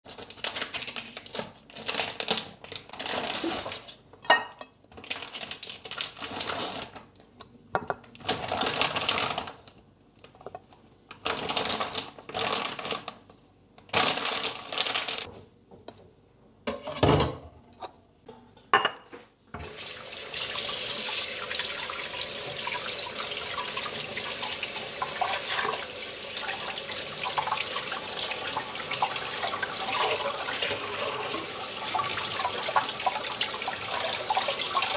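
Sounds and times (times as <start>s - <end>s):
plastic pack crinkling: 0.1s - 3.9s, 5.0s - 7.1s, 8.2s - 10.4s, 11.1s - 15.3s
tap water running into sink: 19.6s - 34.9s.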